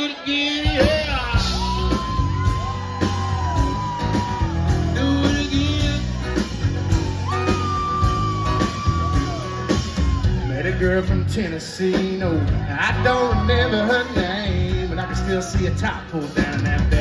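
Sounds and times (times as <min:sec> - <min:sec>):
country rock band playing: 0:00.0 - 0:17.0
person singing: 0:04.0 - 0:06.5, 0:10.4 - 0:17.0.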